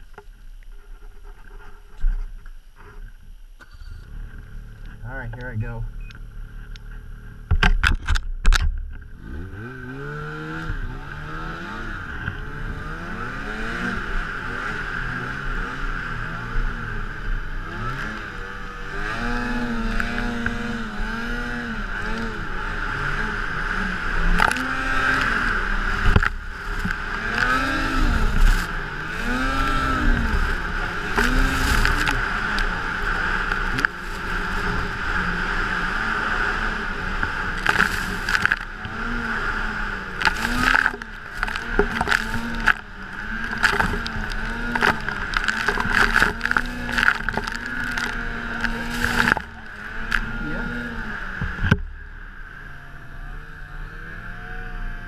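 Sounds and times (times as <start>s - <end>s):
snowmobile engine revving: 9.2s - 51.7s.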